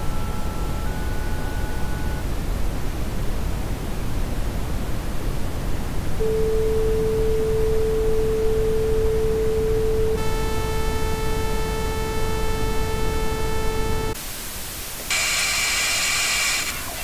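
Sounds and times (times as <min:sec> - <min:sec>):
steady pure tone: 0:00.0 - 0:05.0, 0:06.0 - 0:14.2
broadcast static hiss: 0:00.0 - 0:17.0.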